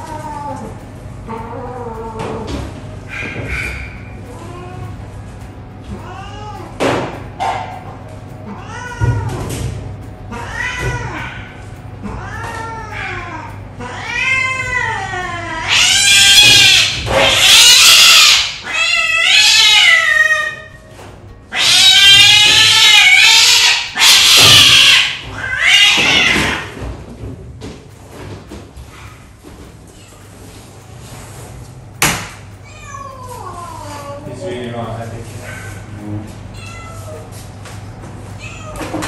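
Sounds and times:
cat yowling in distress: 0:08.5 - 0:09.4, 0:10.3 - 0:20.8, 0:21.5 - 0:26.8.

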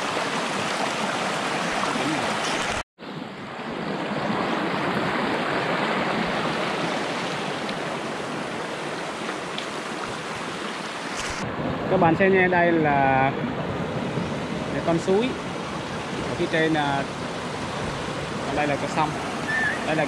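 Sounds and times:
mountain stream rushing over rocks: 0:00.0 - 0:02.8, 0:04.2 - 0:11.4.

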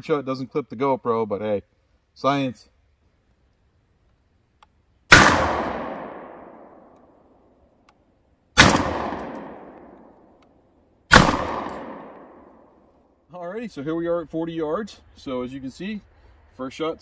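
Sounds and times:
shotgun shots echoing: 0:05.1 - 0:07.3, 0:08.6 - 0:10.4, 0:11.1 - 0:12.9.

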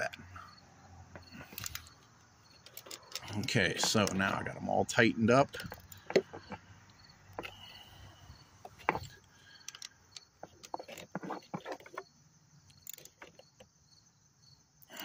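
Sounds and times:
ratchet clicks and metallic taps: 0:08.7 - 0:11.0.

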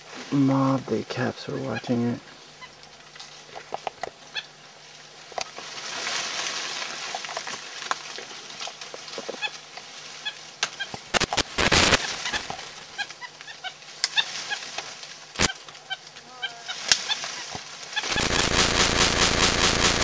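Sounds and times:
dense crackling rush: 0:11.0 - 0:13.1, 0:14.5 - 0:15.9, 0:18.0 - 0:20.0
monkeys honking alarm calls: 0:11.8 - 0:19.6.

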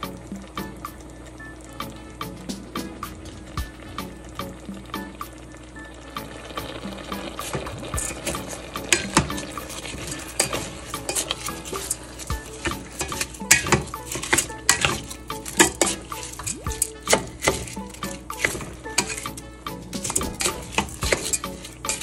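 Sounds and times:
spatula scraping pot: 0:07.1 - 0:22.0.

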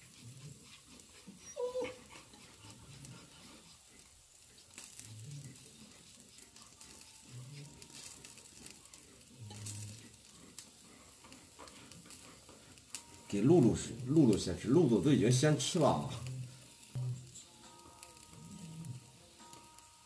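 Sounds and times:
faint low murmurs: 0:00.1 - 0:19.7
dog whining: 0:00.4 - 0:03.2.

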